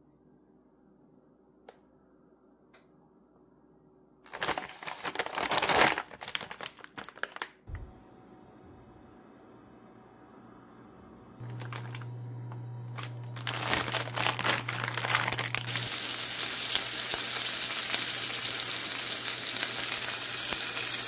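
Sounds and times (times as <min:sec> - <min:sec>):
plastic packaging crinkling: 0:04.3 - 0:07.6, 0:11.4 - 0:18.7.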